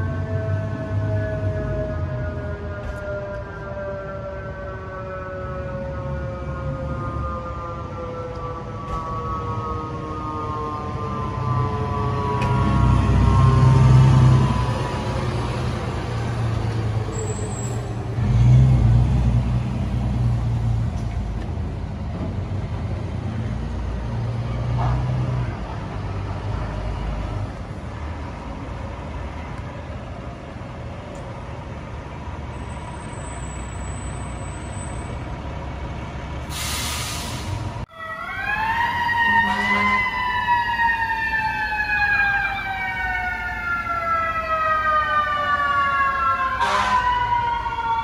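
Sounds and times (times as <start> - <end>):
siren wailing: 0.0 - 18.2, 37.9 - 48.0
fire truck diesel engine: 0.0 - 48.0
street traffic: 0.0 - 48.0.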